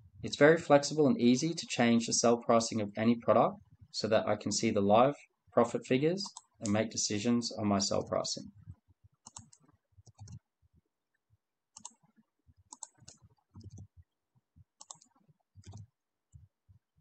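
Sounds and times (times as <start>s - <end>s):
mouse clicks: 9.2s - 10.5s, 11.8s - 12.0s, 12.7s - 13.9s, 14.8s - 16.4s
keyboard keystrokes: 9.3s - 10.4s, 12.7s - 13.9s, 14.8s - 15.9s.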